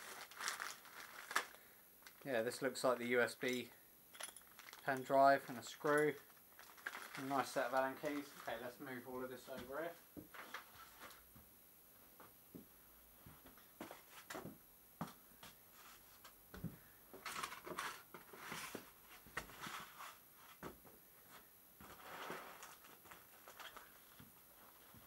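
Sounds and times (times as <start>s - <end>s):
short rustling scrapes: 17.7s - 20.6s, 21.8s - 22.9s.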